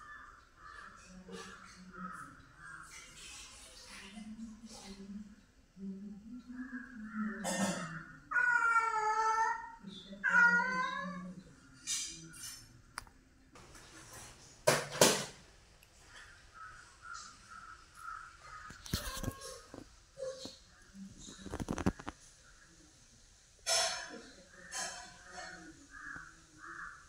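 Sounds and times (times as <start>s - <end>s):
cat meowing: 8.3s - 11.4s.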